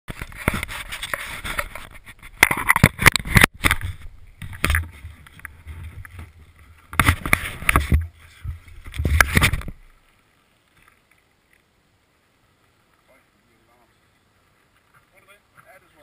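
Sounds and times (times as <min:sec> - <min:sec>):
camera handling knocks and scrapes: 0:00.1 - 0:09.8.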